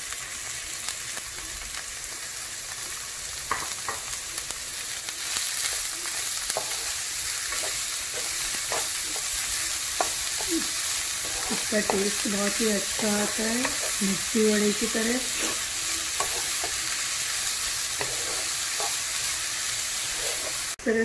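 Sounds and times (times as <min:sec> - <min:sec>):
onions sizzling in hot oil: 0:00.0 - 0:21.0
wooden spatula scraping pan: 0:10.0 - 0:16.8, 0:17.8 - 0:19.2, 0:19.8 - 0:20.8.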